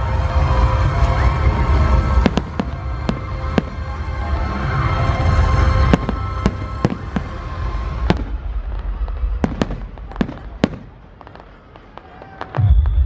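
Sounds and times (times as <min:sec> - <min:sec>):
soundtrack music: 0:00.0 - 0:11.4
fireworks cracking: 0:00.9 - 0:13.0
fireworks booming: 0:01.0 - 0:13.0.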